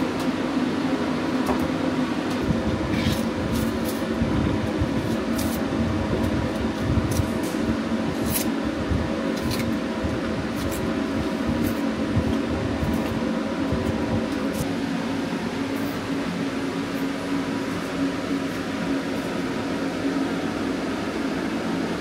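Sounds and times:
machinery humming: 0:00.0 - 0:22.0
knife scraping onions: 0:02.9 - 0:04.1, 0:05.0 - 0:05.7, 0:07.1 - 0:08.6, 0:09.3 - 0:09.8, 0:10.5 - 0:11.9.

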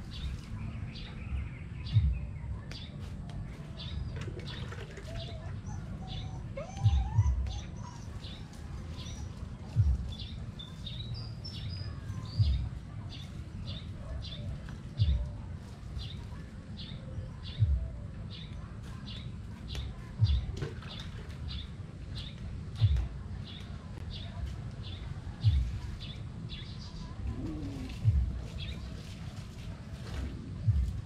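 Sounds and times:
small birds chirping: 0:00.0 - 0:31.0
dull low thumps: 0:01.3 - 0:02.6, 0:06.4 - 0:07.8, 0:09.6 - 0:13.0, 0:14.4 - 0:15.5, 0:17.5 - 0:18.1, 0:20.2 - 0:20.6, 0:22.4 - 0:23.3, 0:25.4 - 0:25.9, 0:27.2 - 0:28.8, 0:30.2 - 0:31.0.

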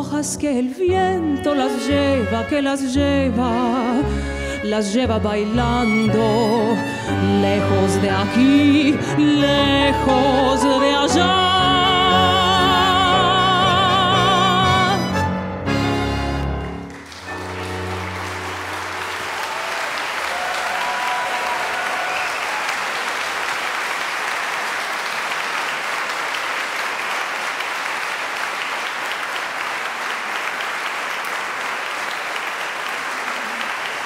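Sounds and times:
audience applauding: 0:16.0 - 0:34.0.

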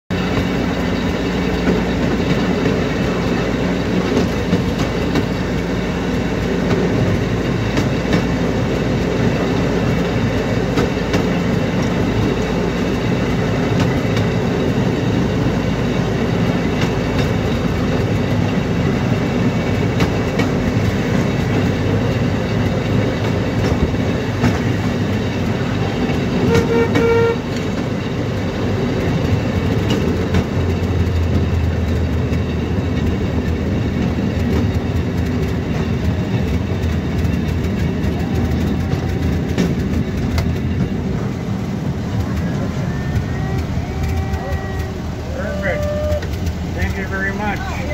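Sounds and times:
wheels clattering on rails: 0:00.1 - 0:47.9
short horn toot: 0:26.4 - 0:27.6.

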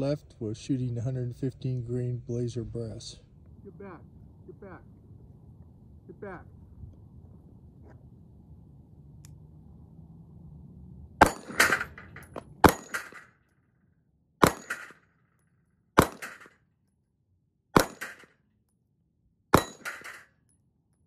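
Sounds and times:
pistol shots: 0:11.2 - 0:12.0, 0:12.6 - 0:13.2, 0:14.4 - 0:15.0, 0:16.0 - 0:16.5, 0:17.8 - 0:18.3, 0:19.5 - 0:20.2
steel plate target clanging: 0:11.2 - 0:13.3, 0:19.6 - 0:20.3.

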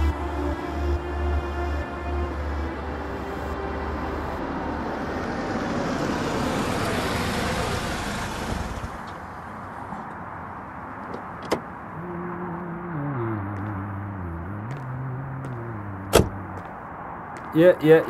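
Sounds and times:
music: 0:00.0 - 0:04.4
car engine and tyre noise: 0:00.0 - 0:18.0.

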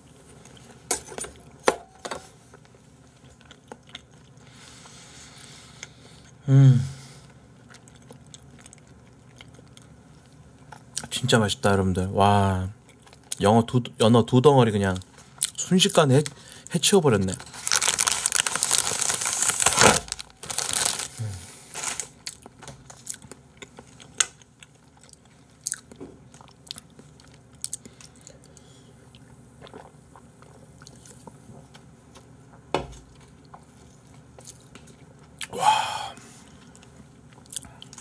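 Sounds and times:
chewing food: 0:02.5 - 0:05.0, 0:07.3 - 0:11.2, 0:12.7 - 0:13.5, 0:22.2 - 0:35.5, 0:36.5 - 0:38.0.

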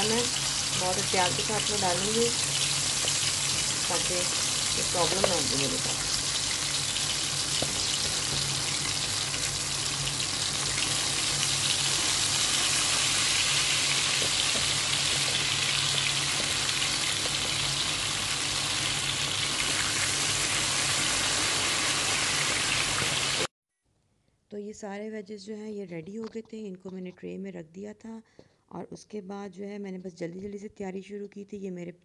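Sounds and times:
food deep-frying in oil: 0:00.0 - 0:23.5.

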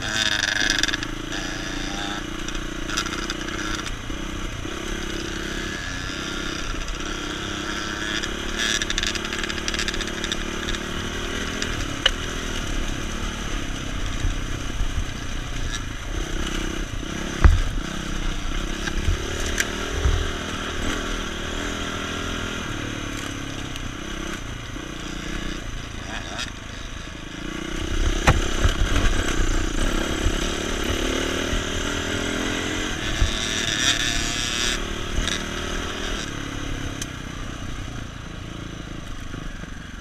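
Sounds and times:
dirt bike engine running: 0:00.0 - 0:40.0
bike knocking and rattling on stones: 0:17.2 - 0:18.0, 0:28.1 - 0:29.6.

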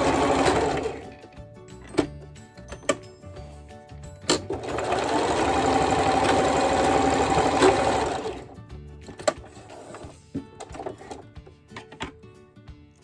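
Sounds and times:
electric sewing machine stitching: 0:00.0 - 0:01.1, 0:04.3 - 0:08.6.

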